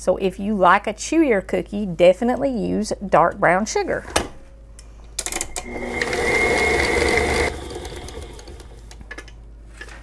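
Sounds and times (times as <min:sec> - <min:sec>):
stand mixer motor whirring: 0:05.5 - 0:08.9.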